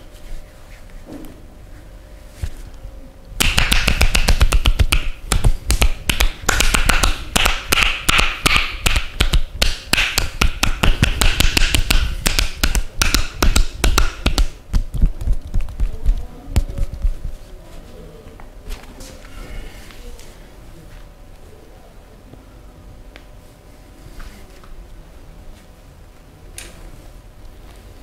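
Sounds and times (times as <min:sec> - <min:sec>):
hands slapping leg: 0:03.4 - 0:17.3.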